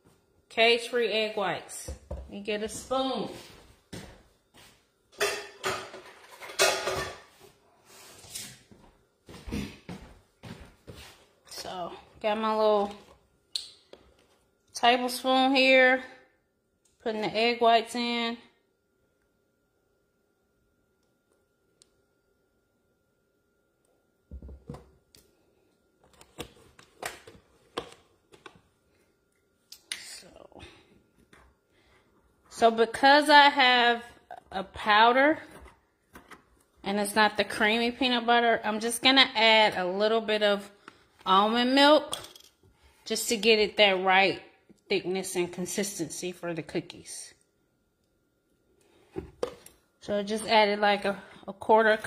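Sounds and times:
metal utensils clattering: 5.2s - 7.3s.

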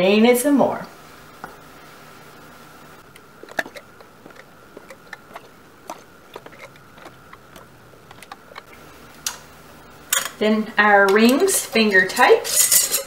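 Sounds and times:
faint high hum: 0.0s - 13.0s.

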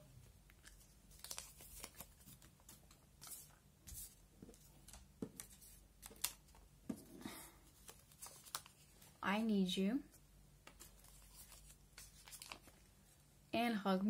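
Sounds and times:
paper rustling and crinkling: 0.5s - 7.1s, 7.7s - 9.2s, 10.6s - 12.9s.

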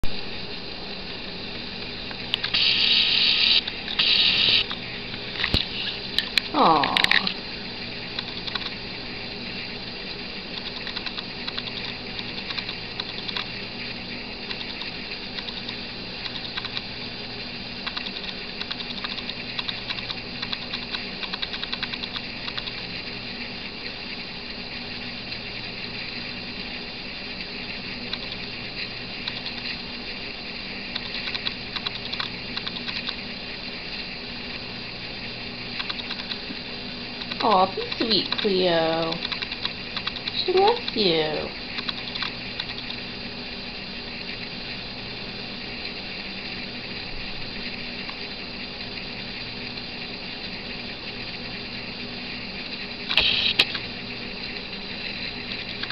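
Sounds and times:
camera hum: 1.7s - 24.7s, 27.4s - 45.0s, 52.6s - 55.9s
rapid small clicking: 2.1s - 7.4s, 8.0s - 8.8s, 10.5s - 13.6s, 14.4s - 17.0s, 17.8s - 22.9s, 28.0s - 29.8s, 30.9s - 33.2s, 35.7s - 41.0s, 41.7s - 43.1s, 55.5s - 55.9s.

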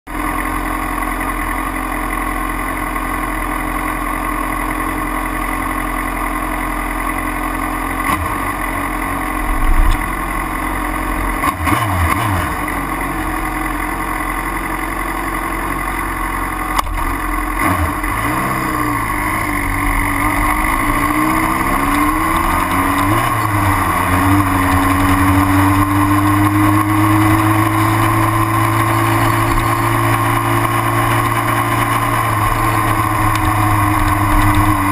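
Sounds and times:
motorcycle engine idling and revving: 0.1s - 34.9s.

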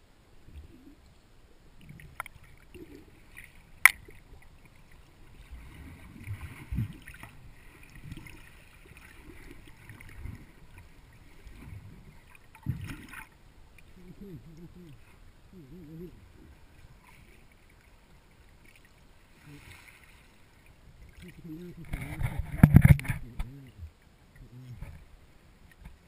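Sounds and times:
muffled underwater thumps and swishes: 5.3s - 13.3s, 21.1s - 25.1s.

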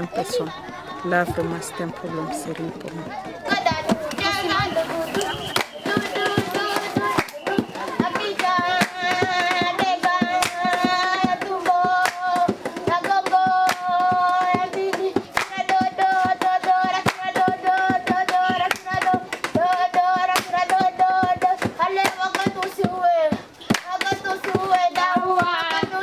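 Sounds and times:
rhythmic hand clapping: 1.7s - 26.0s
children singing in unison: 2.9s - 26.0s.

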